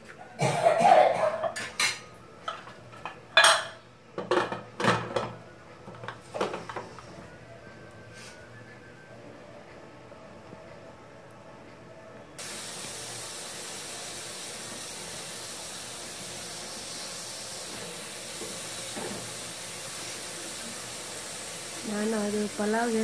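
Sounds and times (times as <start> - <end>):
pressure cooker hissing: 12.4 - 23.0.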